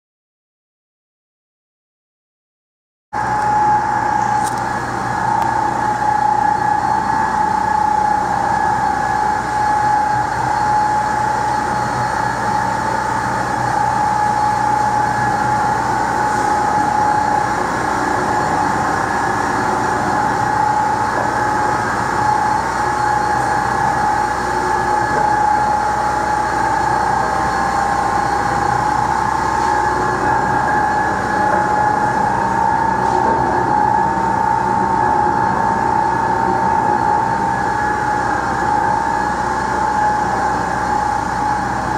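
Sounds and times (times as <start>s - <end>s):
motor and gearbox whine: 3.2s - 41.9s.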